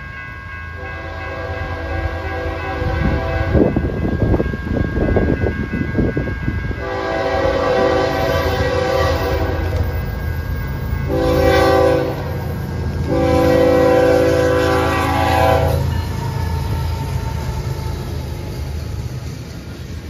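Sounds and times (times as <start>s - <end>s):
train rumbling past: 0.0s - 20.0s
locomotive air horn blasts: 0.8s - 3.7s, 6.8s - 9.9s, 11.1s - 12.4s, 13.0s - 15.9s.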